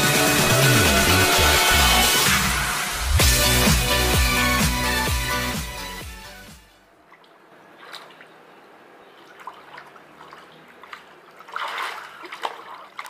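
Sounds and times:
pool water splashing: 6.7s - 13.0s.

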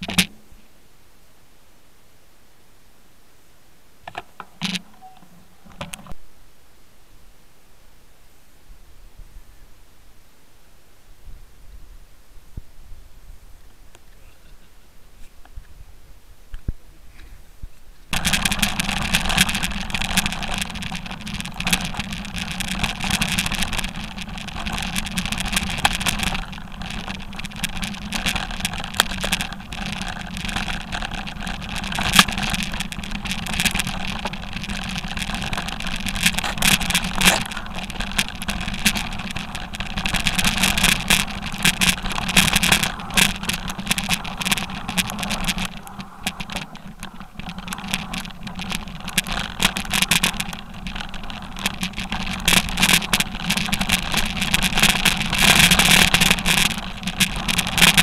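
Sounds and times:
stones rattling against bike: 0.0s - 0.5s, 4.0s - 6.2s, 18.0s - 58.0s
bike tyres rumbling on rocky trail: 16.6s - 58.0s.

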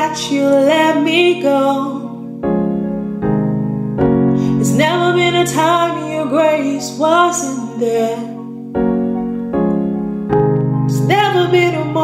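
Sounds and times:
woman singing worship song: 0.0s - 2.2s, 4.4s - 8.5s, 10.9s - 12.0s
keyboard chords: 0.0s - 12.0s.

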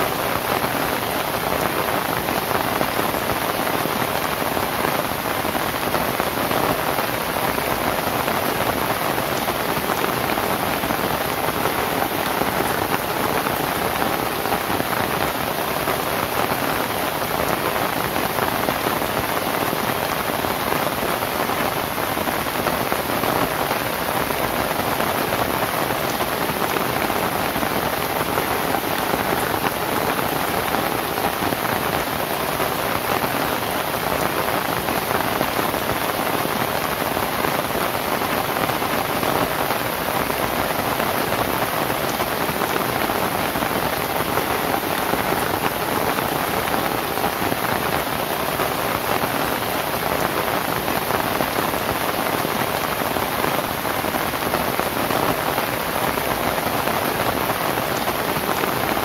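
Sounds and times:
rain on a thatched roof: 0.0s - 59.0s.

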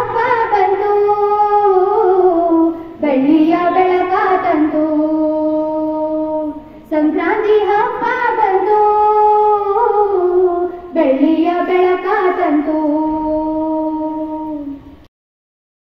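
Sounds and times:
girls singing into microphone: 0.0s - 15.0s.

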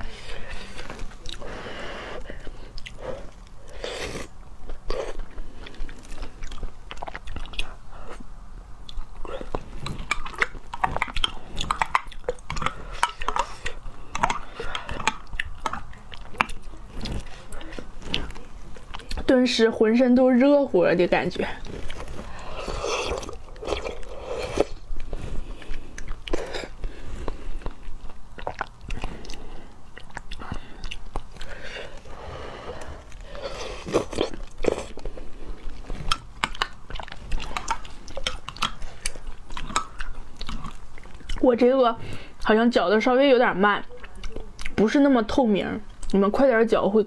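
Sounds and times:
wet chewing with crunches: 0.0s - 19.7s, 21.1s - 42.5s, 43.8s - 45.2s
lip smacks: 8.8s - 19.2s, 35.7s - 41.4s.

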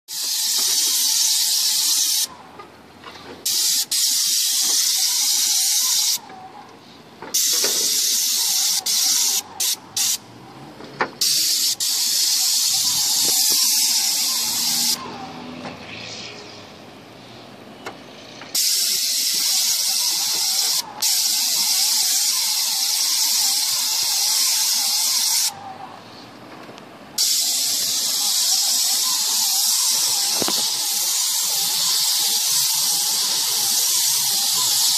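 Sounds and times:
paint spray gun hissing: 0.1s - 2.3s, 3.5s - 6.2s, 7.4s - 10.2s, 11.2s - 15.0s, 18.6s - 25.6s, 27.2s - 34.9s.

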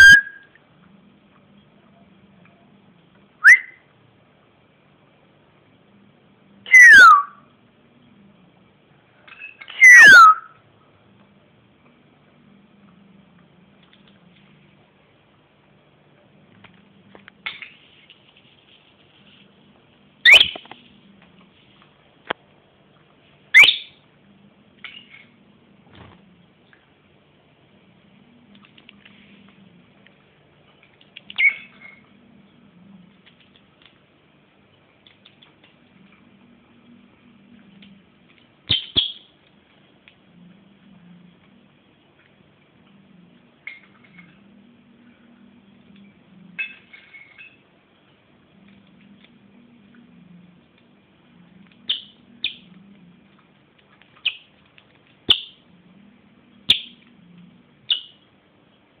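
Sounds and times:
lovebird shrill chirps: 3.4s - 3.8s, 9.3s - 10.6s, 20.2s - 20.6s, 23.6s - 24.0s, 31.3s - 32.0s, 38.7s - 39.3s, 51.9s - 52.7s, 55.3s - 55.6s, 56.7s - 57.0s, 57.9s - 58.2s.

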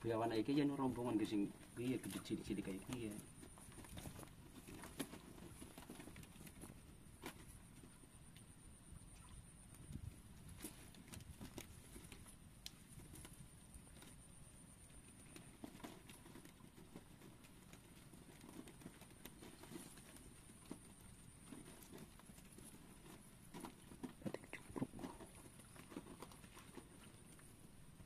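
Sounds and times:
faint high-pitched hum: 6.8s - 10.9s.

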